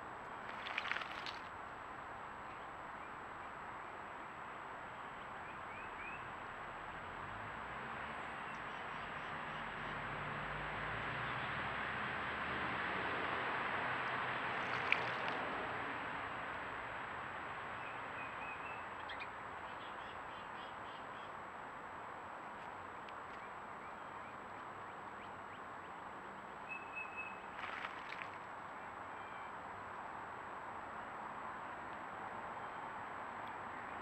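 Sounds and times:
distant vehicle passing: 0:06.5 - 0:17.3.

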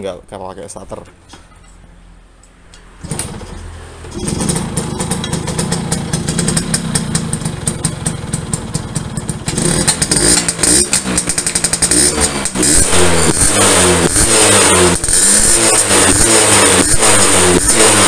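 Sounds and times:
motorcycle engine kick-started: 0:03.0 - 0:12.2
engine revving: 0:03.0 - 0:18.0
two-stroke engine running: 0:03.0 - 0:18.0.

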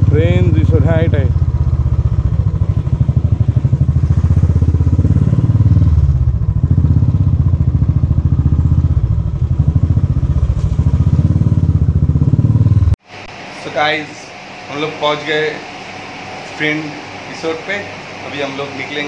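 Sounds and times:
motorcycle engine pulsing: 0:00.0 - 0:13.0.

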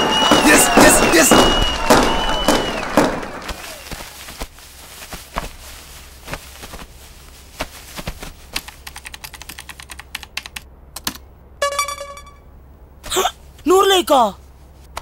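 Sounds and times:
laptop keyboard typing: 0:08.6 - 0:11.2.

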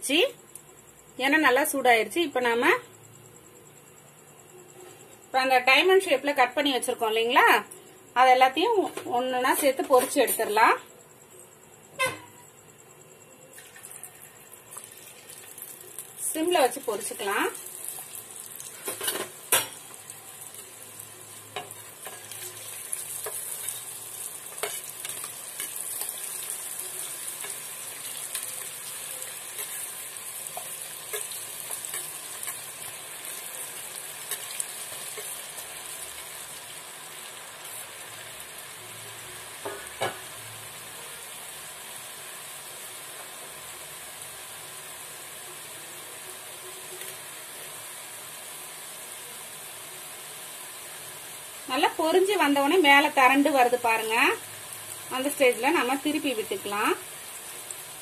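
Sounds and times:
chips deep-frying in oil: 0:13.5 - 0:58.0.

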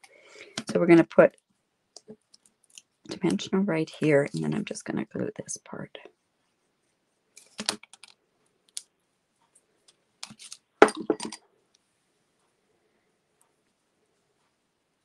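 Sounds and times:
paper pieces handled: 0:10.2 - 0:10.6
craft supplies clicking and tapping: 0:10.2 - 0:11.4.

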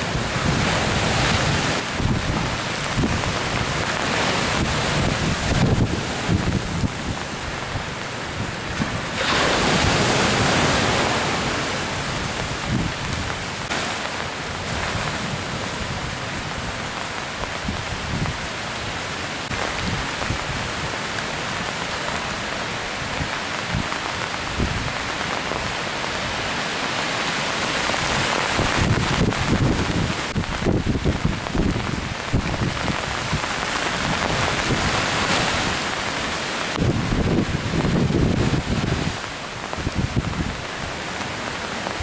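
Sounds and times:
surf breaking against breakwater: 0:00.0 - 0:17.4
rain hissing: 0:00.0 - 0:42.0
wind: 0:00.0 - 0:42.0.

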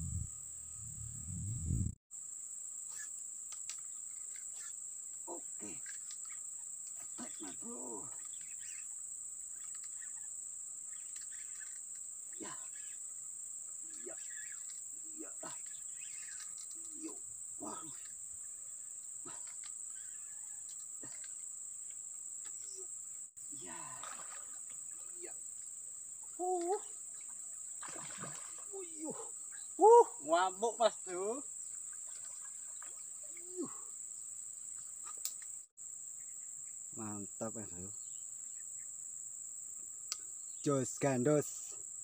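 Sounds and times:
insect drone: 0:00.0 - 0:42.0.

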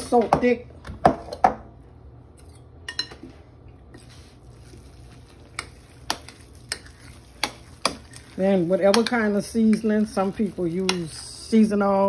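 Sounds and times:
fork stirring potato salad: 0:04.0 - 0:11.6.

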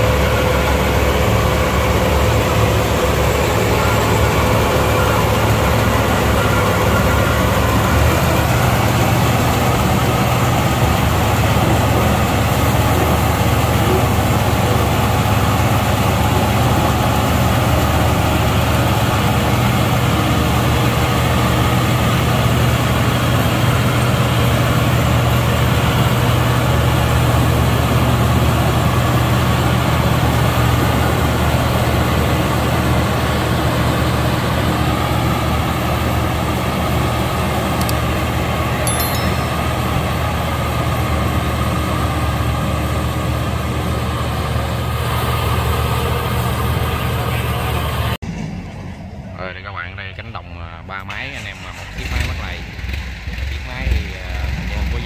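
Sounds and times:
combine harvester engine humming: 0:00.0 - 0:49.2.

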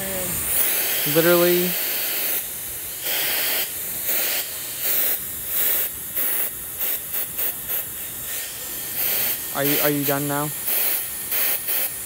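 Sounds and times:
high motor whine: 0:00.0 - 0:01.7
hair styler blowing air: 0:00.0 - 0:05.0.

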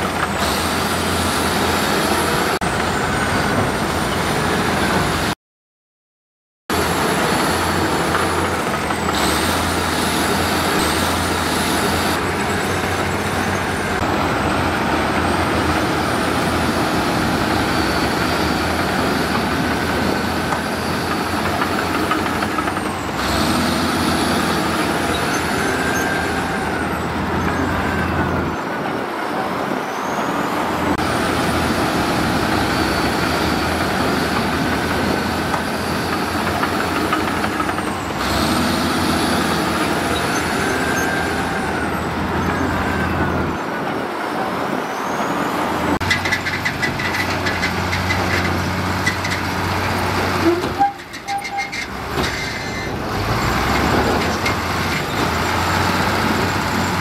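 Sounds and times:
diesel machinery engine drone: 0:00.0 - 0:05.4, 0:06.7 - 0:57.0.

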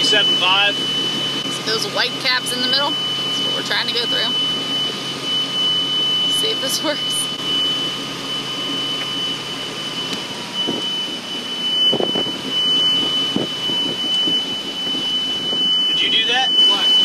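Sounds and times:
boat engine running hard: 0:00.0 - 0:17.0
steady high-pitched tone: 0:00.0 - 0:17.0.

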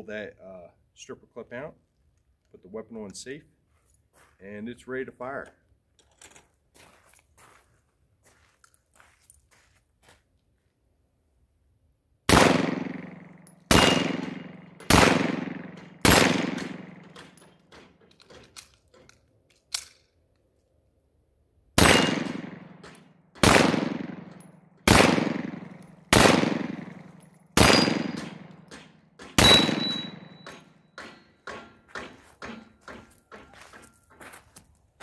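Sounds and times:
pistol shots with echo: 0:12.3 - 0:17.2, 0:21.8 - 0:31.1
sharp pistol click: 0:19.6 - 0:20.1.

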